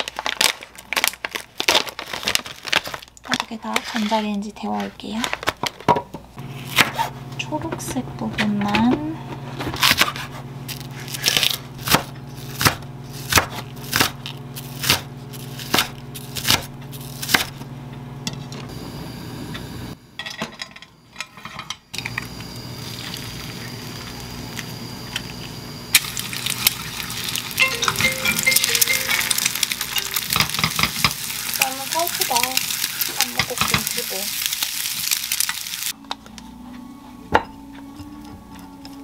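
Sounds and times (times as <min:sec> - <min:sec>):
knife chopping on wooden board: 0:11.8 - 0:14.2, 0:14.8 - 0:17.5
egg sizzling in a pan: 0:22.0 - 0:36.0.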